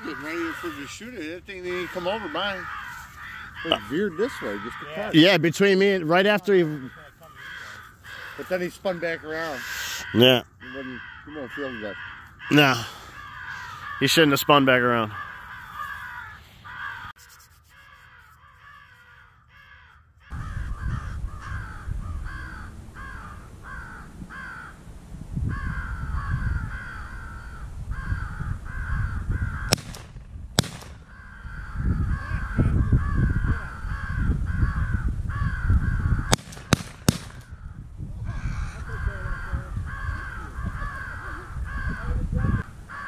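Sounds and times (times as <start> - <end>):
crows cawing: 0.0 - 24.8, 25.4 - 43.0
wind on microphone: 20.3 - 43.0
sharp cracks: 29.6 - 31.2, 36.3 - 37.6.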